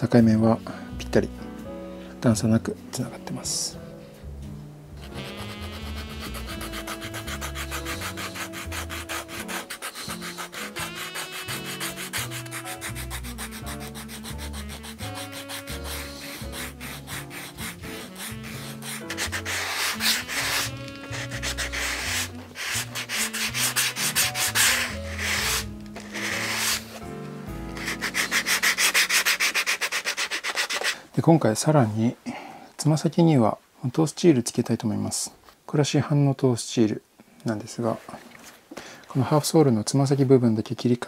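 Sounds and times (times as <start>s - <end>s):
sandpaper rubbing on shoe sole: 5.0s - 27.0s, 27.7s - 31.0s.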